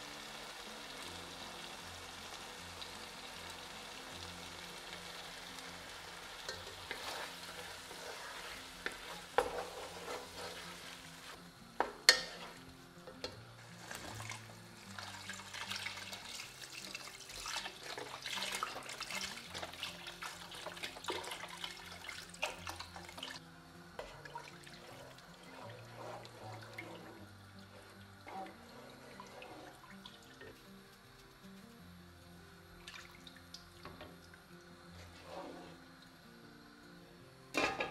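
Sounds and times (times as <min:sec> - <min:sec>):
stew sizzling in a pan: 0:00.0 - 0:37.9
metal spoon stirring: 0:06.5 - 0:11.4, 0:12.1 - 0:14.4, 0:24.0 - 0:27.2
stirring liquid: 0:24.0 - 0:30.6.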